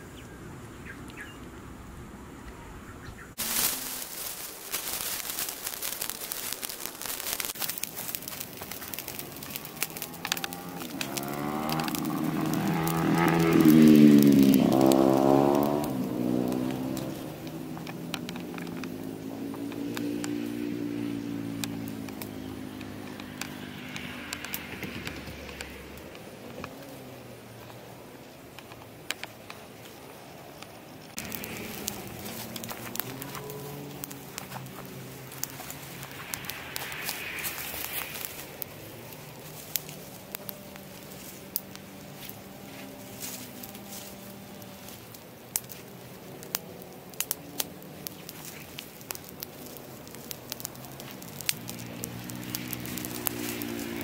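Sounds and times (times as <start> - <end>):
fire crackling and snapping: 3.4 - 54.0
light ticks: 5.9 - 26.9, 30.6 - 54.0
low drone: 31.1 - 45.1.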